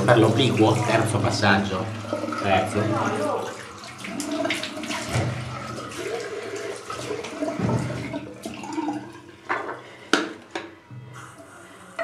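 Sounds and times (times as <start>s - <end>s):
water splashing: 0.0s - 9.3s
water running from a tap into a sink: 0.0s - 9.6s.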